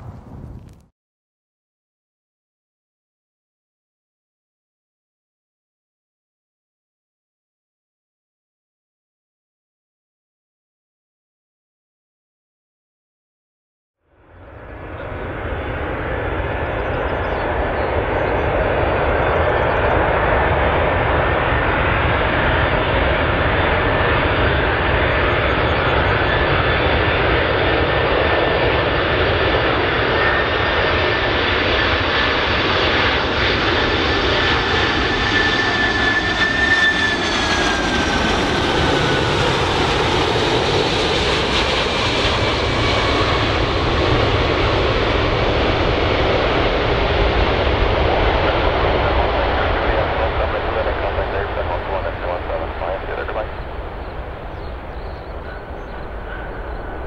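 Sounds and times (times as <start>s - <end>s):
airplane engines running: 0.0s - 0.9s, 14.0s - 57.0s
high engine whine: 14.1s - 57.0s.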